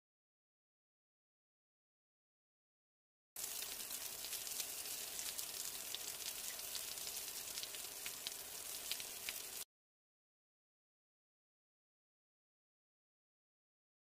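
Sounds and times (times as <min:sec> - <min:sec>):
rain falling: 0:03.4 - 0:09.6.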